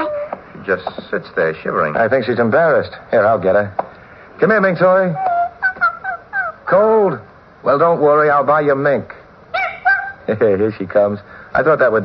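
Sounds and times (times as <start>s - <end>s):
small dog whimpering: 0.0s - 0.4s, 9.6s - 10.2s.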